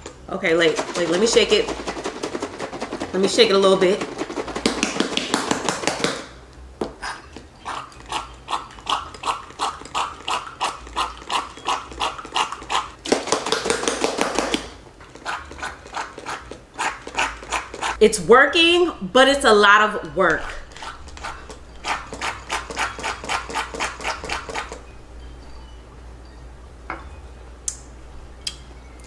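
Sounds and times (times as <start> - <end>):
pump bottle shaken: 0.5 - 6.3, 7.3 - 18.0, 20.4 - 24.8
soap pump squirting: 0.6 - 5.0.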